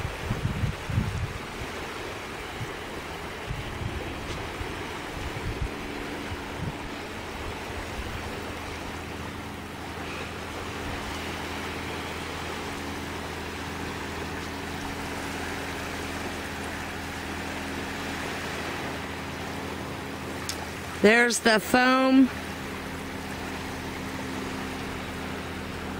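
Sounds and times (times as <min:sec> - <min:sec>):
low engine drone: 0:00.0 - 0:25.9
small waves washing on shore: 0:00.0 - 0:25.9.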